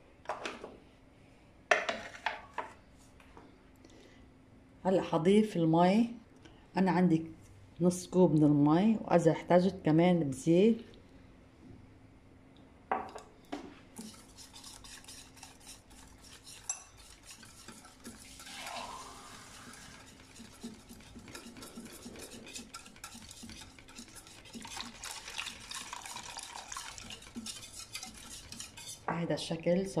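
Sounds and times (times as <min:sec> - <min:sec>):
whisk scraping metal bowl: 0:14.0 - 0:29.1
water being poured: 0:18.2 - 0:20.0, 0:24.3 - 0:27.5.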